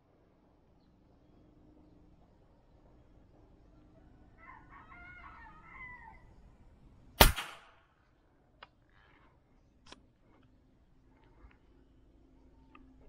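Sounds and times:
rooster crowing faintly: 3.6 - 6.4.

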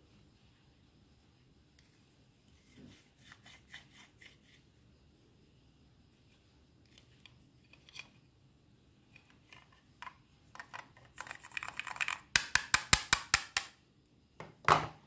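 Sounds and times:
sharp plastic clicks: 10.6 - 13.8.

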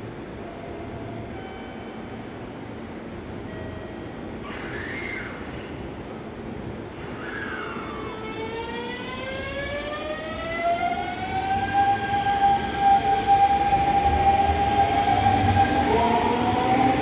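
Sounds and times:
train wheel rumble: 4.2 - 17.0
electric train motors whining: 7.0 - 17.0.

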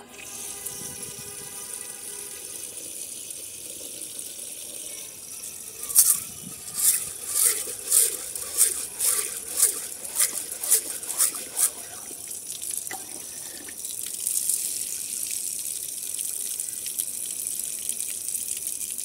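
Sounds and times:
tap water pouring into bowl: 0.0 - 19.0
water sloshing in bowl: 5.9 - 13.8.

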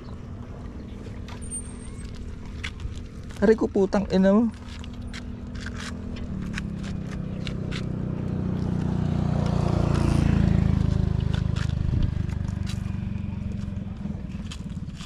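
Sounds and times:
motor engine droning past: 6.3 - 14.7.

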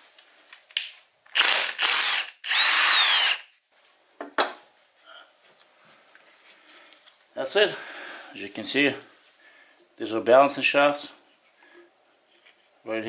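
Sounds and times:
cordless power tool running: 1.4 - 3.4.

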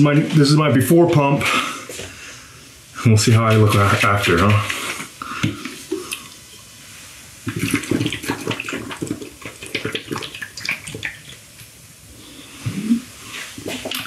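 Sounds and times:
person gulping a drink: 4.5 - 6.7, 7.4 - 11.5, 12.6 - 14.0.

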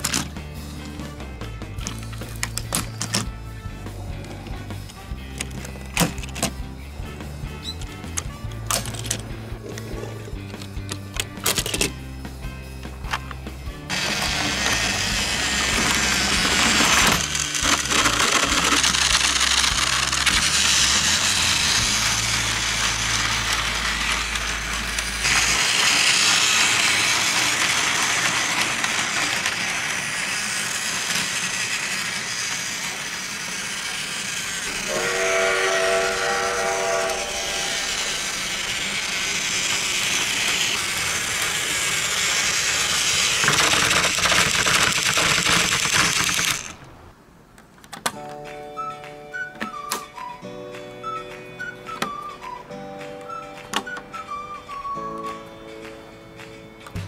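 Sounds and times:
toy train motor whirring: 13.9 - 46.8
whistle-like tone: 34.9 - 38.0, 48.7 - 55.6.

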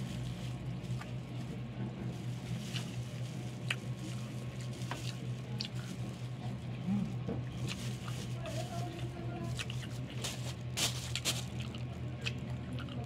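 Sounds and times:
steady low hum: 0.0 - 13.0
person chewing food: 2.5 - 8.2, 9.0 - 13.0.

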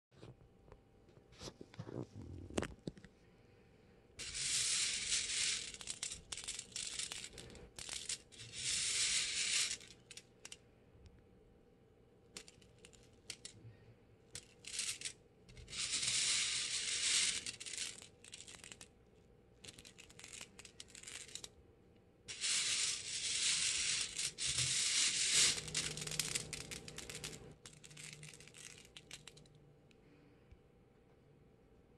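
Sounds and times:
coffee beans rattling in strainer: 4.2 - 10.2, 14.4 - 18.8, 22.3 - 29.4.

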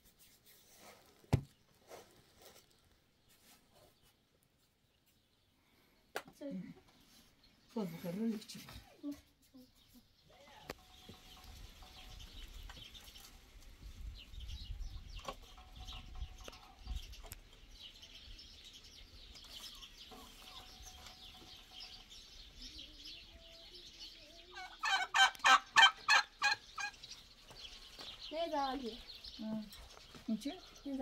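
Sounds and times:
poultry calling rapidly: 24.5 - 27.0.

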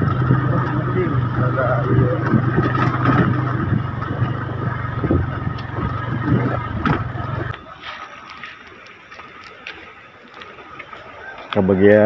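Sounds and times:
knocks and rattles over bumps: 0.0 - 7.6
small motorcycle engine running: 0.0 - 7.6.

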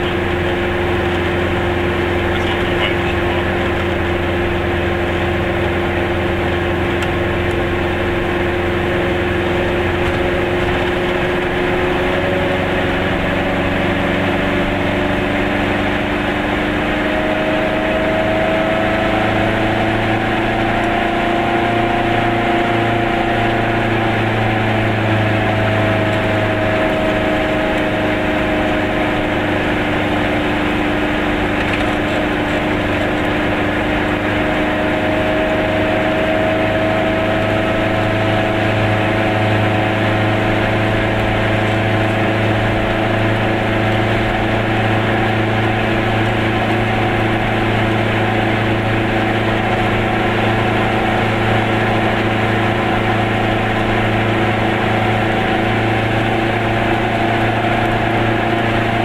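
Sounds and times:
car engine running: 0.0 - 59.0
tyre noise on road: 16.4 - 59.0.

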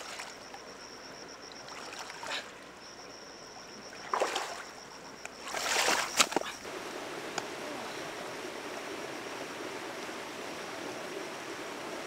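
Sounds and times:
water splashing: 1.4 - 2.8, 3.6 - 4.8, 5.4 - 12.0
steady rush of water: 5.4 - 12.0.

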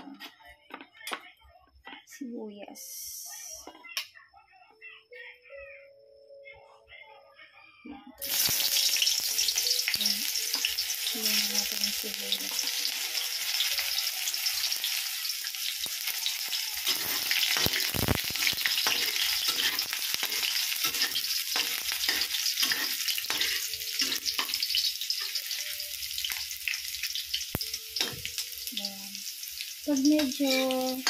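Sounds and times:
onions sizzling in hot oil: 8.2 - 31.0
metal spatula scraping pan: 16.8 - 25.4.

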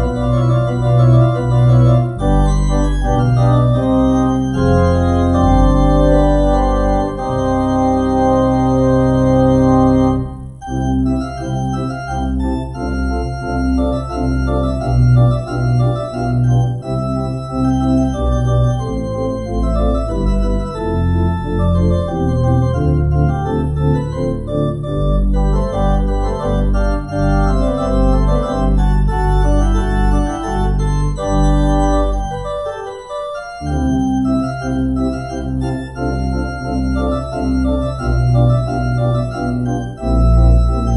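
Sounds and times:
church organ playing: 0.0 - 40.9.

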